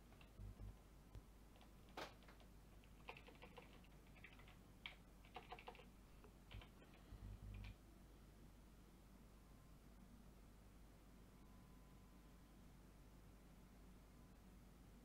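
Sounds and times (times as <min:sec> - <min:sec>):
keyboard typing: 0:00.0 - 0:00.8, 0:01.5 - 0:07.8
dull low thumps: 0:00.3 - 0:00.8.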